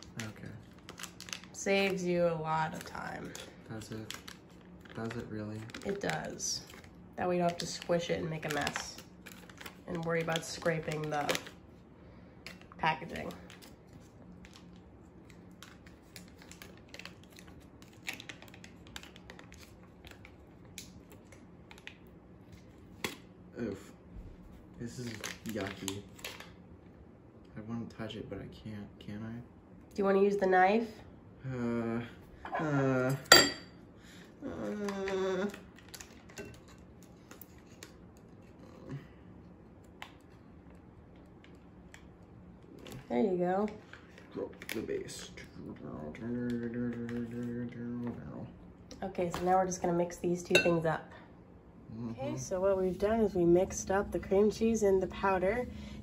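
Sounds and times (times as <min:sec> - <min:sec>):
foil wrapper crinkling: 0:00.0 - 0:11.6, 0:12.4 - 0:23.2, 0:24.8 - 0:26.5, 0:35.5 - 0:38.4.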